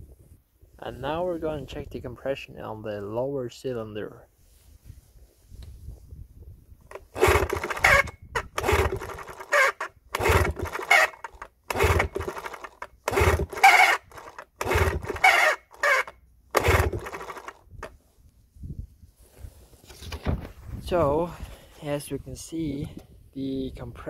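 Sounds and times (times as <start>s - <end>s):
outboard engine cranked by hand: 6.9s - 17.9s.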